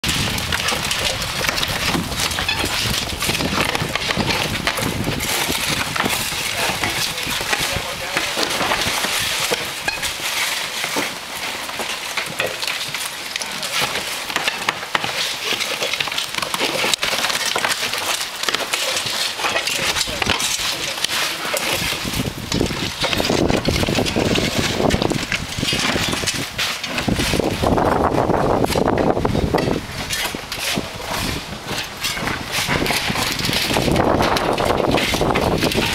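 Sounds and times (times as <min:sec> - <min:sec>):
shovels scraping roof shingles: 0:00.0 - 0:35.9.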